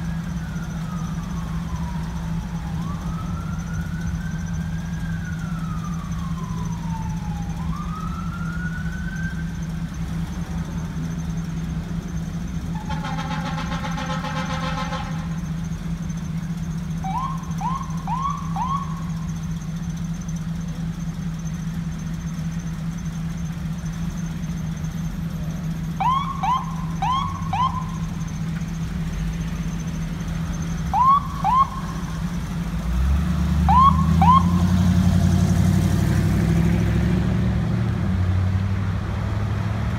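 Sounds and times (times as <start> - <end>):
fire truck siren wailing: 0.0 - 21.4, 23.8 - 37.6
siren chirps: 0.0 - 32.9, 33.5 - 35.6
truck engine: 0.0 - 39.9
fire truck horn blast: 12.8 - 15.4.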